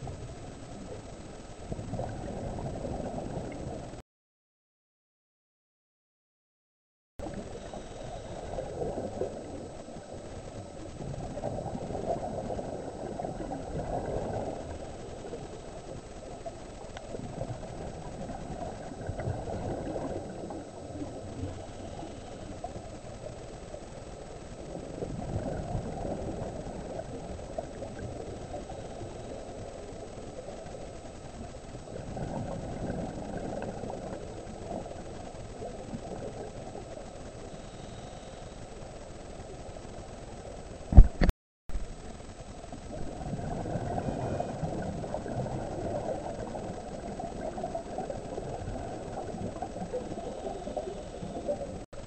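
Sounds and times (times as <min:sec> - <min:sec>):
steady low underwater rumble: 0:00.0 - 0:04.0, 0:07.2 - 0:52.0
diver's regulator exhaling bubbles: 0:01.7 - 0:04.0, 0:07.2 - 0:15.6, 0:16.2 - 0:23.0, 0:24.7 - 0:29.5, 0:31.8 - 0:36.9, 0:42.8 - 0:51.9.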